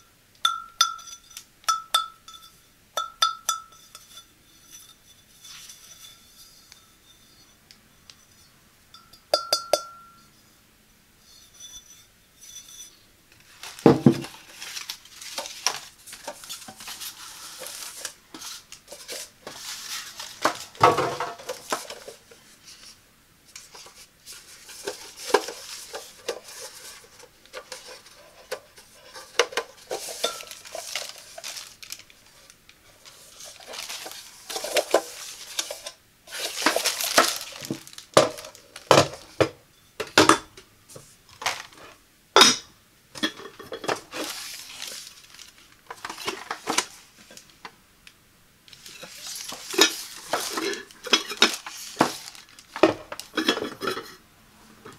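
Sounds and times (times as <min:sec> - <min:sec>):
ceramic crock and lid clinking: 0:00.4 - 0:05.0, 0:09.0 - 0:10.2, 0:53.3 - 0:54.2
metal and ceramic scraping: 0:00.5 - 0:10.5, 0:11.2 - 0:22.8, 0:23.6 - 0:31.7, 0:48.8 - 0:54.2.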